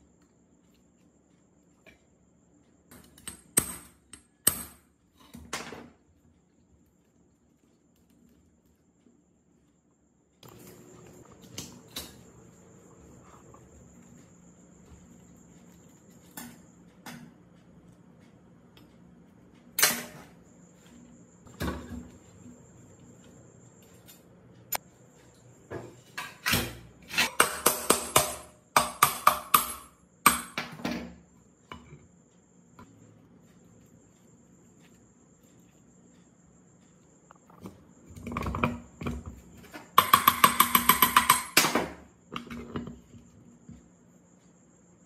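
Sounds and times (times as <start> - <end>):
metal tools knocking on metal: 38.2 - 41.6.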